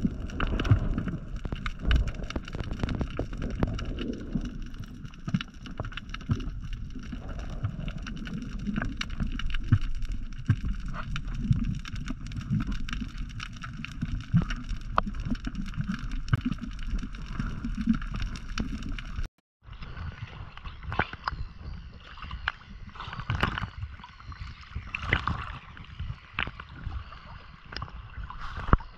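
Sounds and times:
sharp clicks and crackles: 0:00.0 - 0:19.3
underwater water rush: 0:00.0 - 0:28.9.

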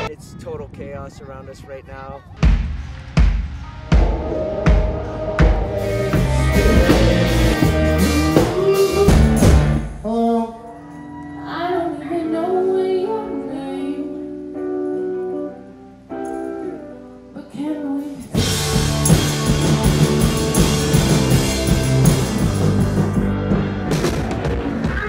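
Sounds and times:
rock band with drums: 0:02.3 - 0:10.3, 0:18.0 - 0:25.0
person singing long notes: 0:03.8 - 0:10.7.

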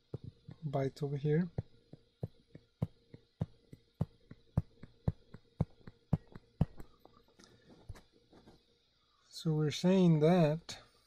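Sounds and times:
stylus tapping on touchscreen: 0:01.9 - 0:06.9.

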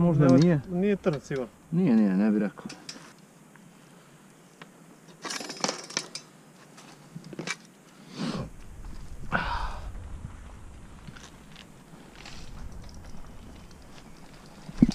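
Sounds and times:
bike clicks and rattles: 0:00.2 - 0:03.3, 0:05.0 - 0:07.9, 0:10.3 - 0:14.9
bike clattering onto gravel: 0:05.1 - 0:07.7, 0:11.0 - 0:14.9.

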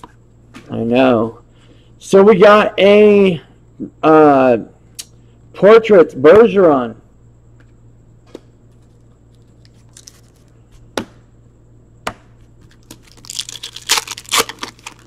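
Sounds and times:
foil pack tearing and crinkling: 0:09.6 - 0:10.5, 0:12.7 - 0:15.0.

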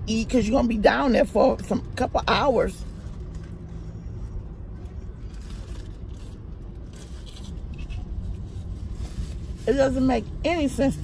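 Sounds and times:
car idling rumble: 0:00.0 - 0:11.0.

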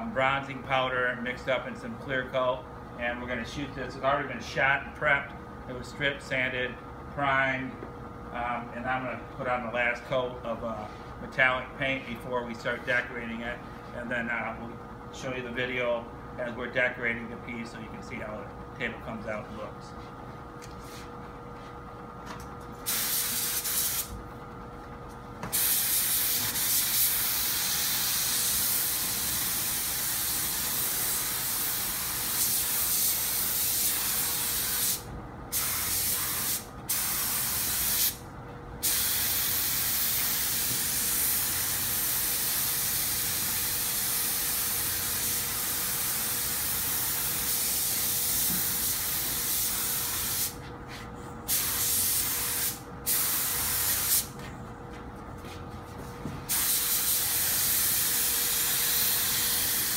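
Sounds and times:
paint spray gun hissing: 0:22.9 - 0:24.1, 0:25.5 - 0:38.2, 0:38.8 - 0:50.6, 0:51.5 - 0:54.3, 0:56.5 - 0:59.9.

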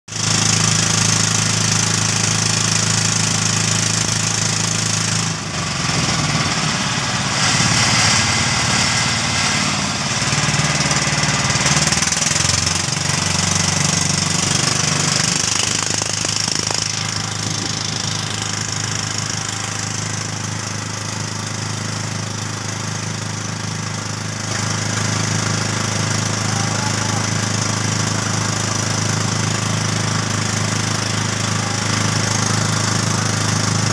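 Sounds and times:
small boat motor droning: 0:00.1 - 0:33.9.

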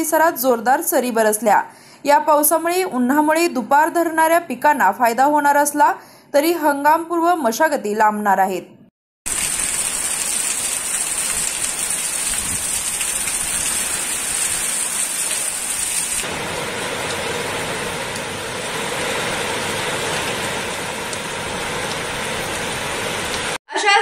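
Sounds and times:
heavy rain pouring: 0:09.3 - 0:23.6.

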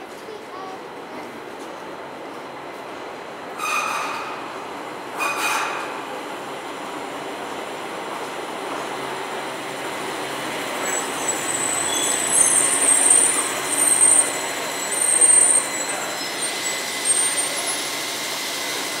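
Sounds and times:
light rail car rumbling: 0:00.0 - 0:19.0
high-pitched brake squeals: 0:03.6 - 0:04.6, 0:05.2 - 0:05.9, 0:10.7 - 0:19.0.

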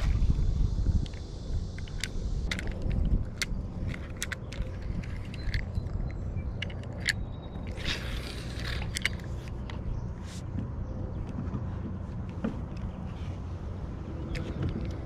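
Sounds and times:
fishing rod and reel clicks: 0:00.0 - 0:10.4, 0:14.0 - 0:15.0
steady low rumble: 0:00.0 - 0:15.0.

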